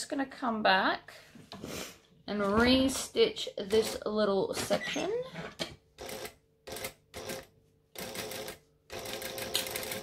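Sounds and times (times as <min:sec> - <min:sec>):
sewing machine stitching: 0:04.7 - 0:10.0.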